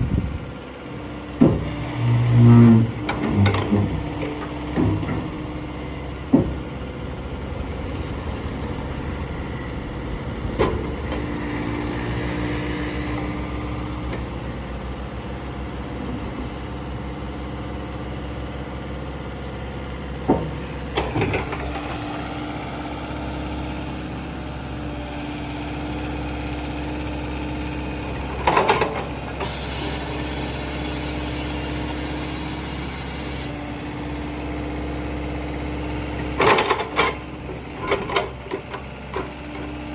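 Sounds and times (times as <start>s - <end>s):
excavator diesel engine running: 0.0s - 39.9s
humming tone: 1.8s - 3.9s
metal clanks of bucket linkage: 2.7s - 5.3s, 28.4s - 29.6s, 36.4s - 39.7s.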